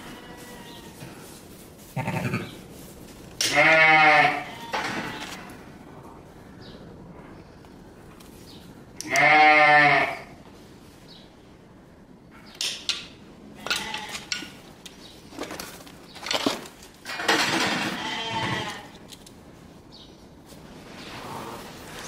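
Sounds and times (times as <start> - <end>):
sheep bleating: 3.4 - 4.8, 9.0 - 10.3, 17.9 - 18.9.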